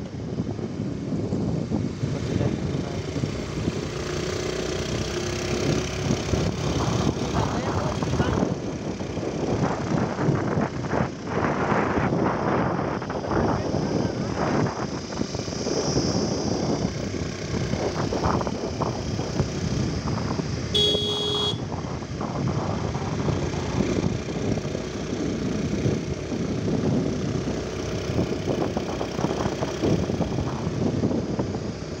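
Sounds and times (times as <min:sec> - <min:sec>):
wind buffeting microphone: 0:00.0 - 0:32.0
scooter engine running: 0:01.5 - 0:11.7, 0:13.8 - 0:32.0
horn beep: 0:20.8 - 0:21.6.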